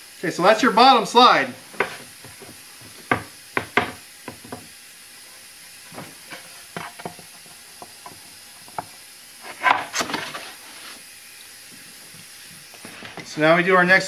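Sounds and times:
plywood scraping over plywood: 1.7s - 4.6s, 9.4s - 11.0s
plywood knocks and taps: 1.8s - 4.7s.

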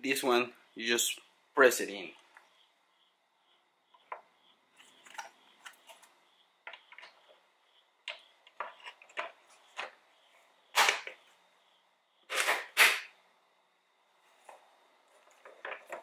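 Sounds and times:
loud plastic snaps: 10.7s - 11.2s.

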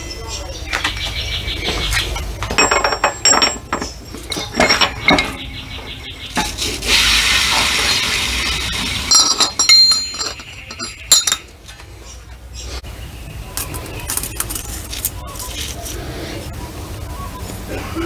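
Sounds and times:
metal gears clinking: 2.5s - 5.6s, 9.0s - 11.5s.

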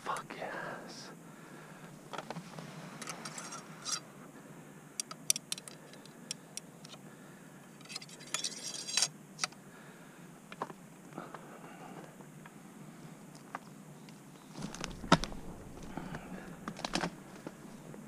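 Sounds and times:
metallic clicks and scraping: 3.0s - 4.0s, 7.8s - 9.5s.

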